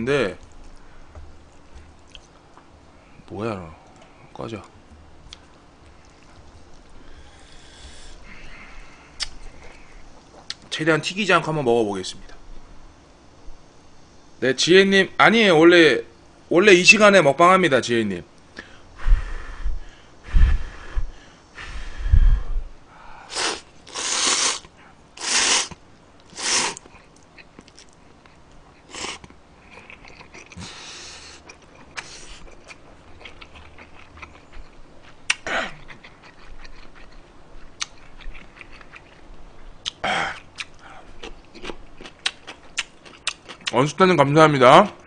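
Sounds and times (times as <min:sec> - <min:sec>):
chewing: 0:01.4 - 0:02.7, 0:25.7 - 0:43.8
noisy noodle slurps: 0:23.3 - 0:26.8.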